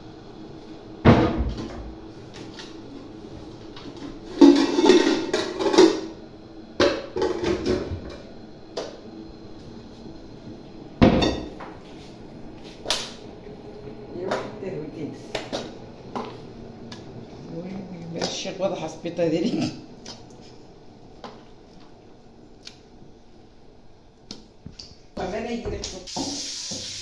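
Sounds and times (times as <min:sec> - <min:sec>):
metal pots and pans clanking: 0:04.3 - 0:06.1, 0:06.8 - 0:08.0.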